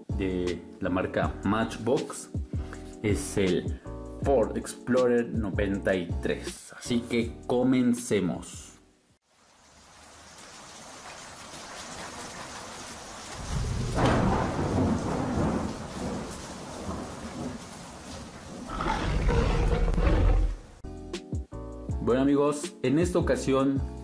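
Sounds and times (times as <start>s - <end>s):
rain hissing: 9.2s - 20.9s
thunder clap and rumble: 12.0s - 20.8s.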